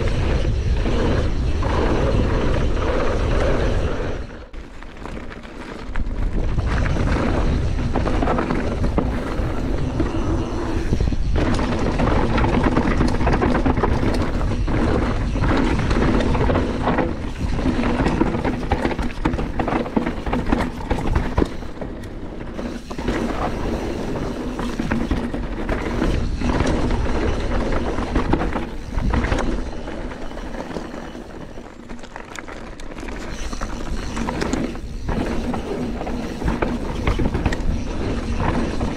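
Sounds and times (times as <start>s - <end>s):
wind rush: 0.0s - 4.5s, 5.9s - 31.6s
bike knocking and rattling: 0.0s - 38.9s
tyres rolling over dirt: 0.0s - 38.9s.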